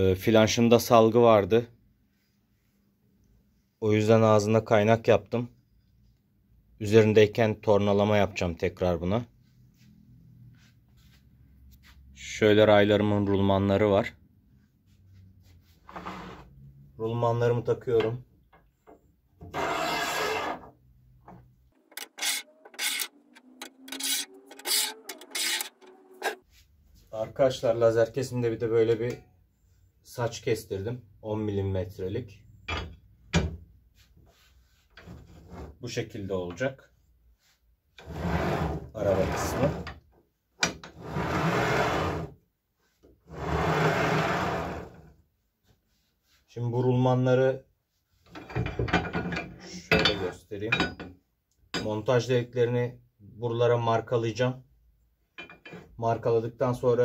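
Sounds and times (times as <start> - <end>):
metal bearing blocks sliding on rail: 21.8 - 26.4.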